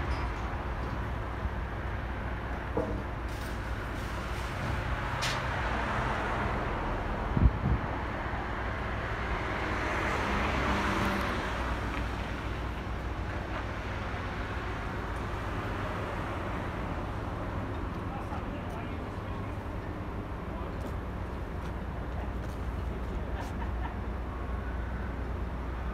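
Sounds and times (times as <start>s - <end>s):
traffic rumble: 0.0s - 25.9s
vehicle passing: 9.1s - 12.4s.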